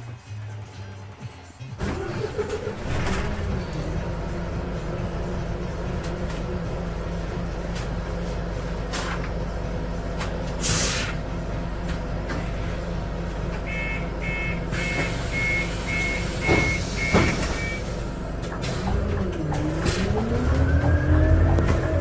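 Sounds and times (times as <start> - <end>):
bus engine idling: 0.0 - 22.0
compressed air hisses: 10.6 - 11.2.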